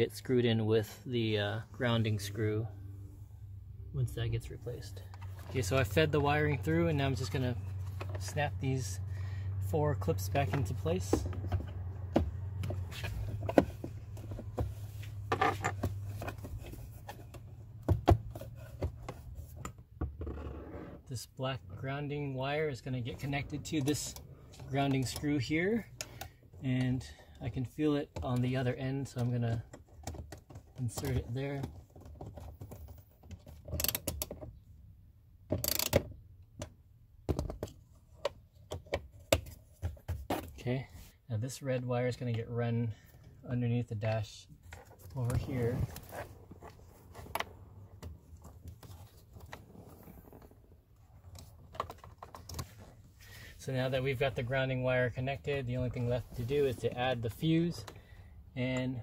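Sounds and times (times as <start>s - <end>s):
screw clicking and scraping on plastic: 32.0s - 34.4s
plastic rubbing and scraping: 44.6s - 53.2s.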